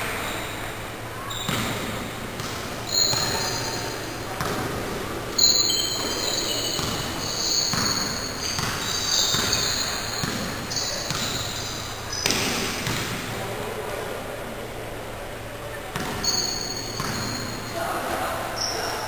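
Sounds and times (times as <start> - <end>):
shoes squeaking on court: 1.2 - 13.2, 16.0 - 17.8
basketball bouncing: 1.3 - 13.3, 15.9 - 17.6.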